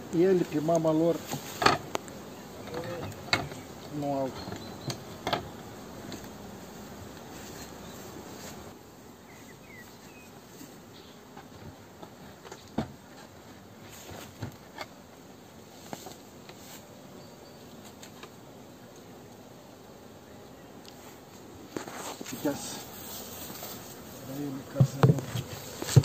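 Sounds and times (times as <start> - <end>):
honeybees humming: 0.0 - 26.0
knocks on wooden hive boxes: 1.3 - 6.2, 24.6 - 26.0.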